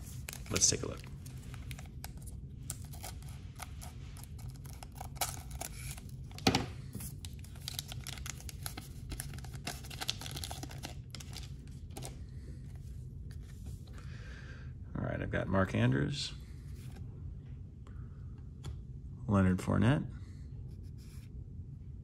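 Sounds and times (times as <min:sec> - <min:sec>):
foil wrapper crinkling: 0:00.0 - 0:06.4, 0:07.0 - 0:12.1.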